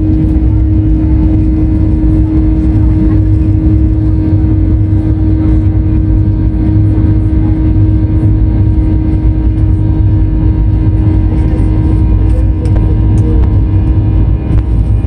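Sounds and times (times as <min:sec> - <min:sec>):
jet engine rumble in cabin: 0:00.0 - 0:15.0.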